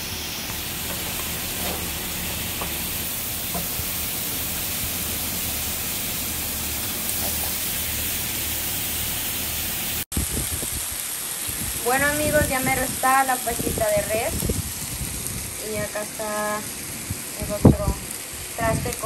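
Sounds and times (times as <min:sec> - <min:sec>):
meat sizzling: 0:00.0 - 0:19.0
metal tongs scraping pan: 0:00.8 - 0:03.8.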